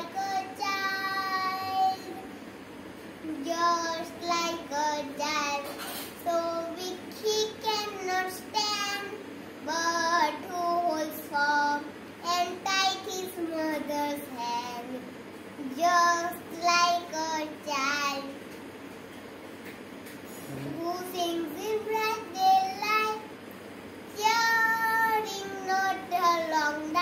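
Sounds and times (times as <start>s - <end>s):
boy singing unaccompanied: 0.0s - 2.2s, 3.2s - 5.6s, 20.6s - 23.3s, 24.1s - 27.0s.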